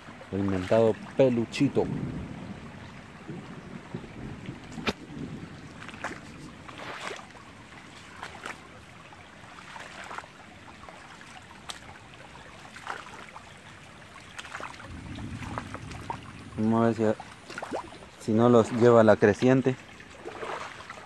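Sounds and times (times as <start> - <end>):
creek trickling over stones: 0.0 - 21.0
short clicks or splashes: 4.7 - 5.0, 5.8 - 7.4, 11.2 - 11.9, 12.6 - 13.3, 14.2 - 16.2, 17.2 - 18.1.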